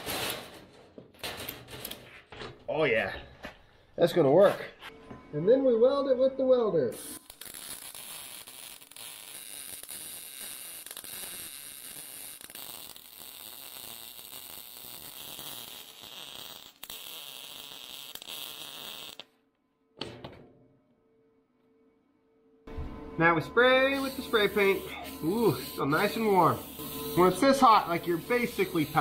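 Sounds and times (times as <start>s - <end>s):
welding arc crackling: 7.0s - 19.4s, 23.9s - 29.0s.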